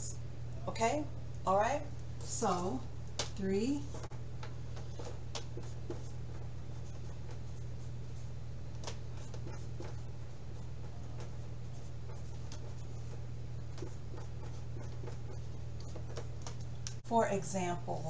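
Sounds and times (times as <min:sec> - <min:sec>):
steady low hum: 0:00.0 - 0:18.0
marker writing on whiteboard: 0:03.8 - 0:16.8.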